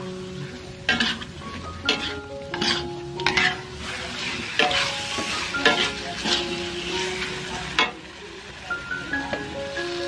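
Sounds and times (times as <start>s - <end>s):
food sizzling: 0.0s - 10.0s
metal spatula scraping a wok: 0.2s - 8.0s.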